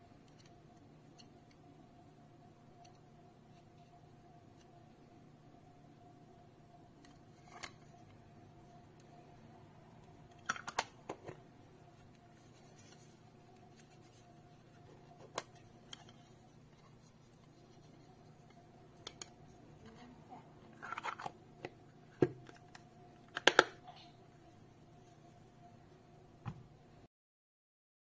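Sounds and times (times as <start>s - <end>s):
plastic case clicks and scrapes: 20.8s - 21.4s.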